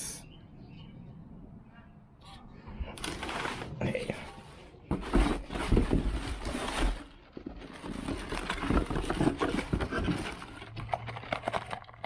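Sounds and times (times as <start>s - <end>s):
cardboard and plastic packing rustling: 2.9s - 12.0s.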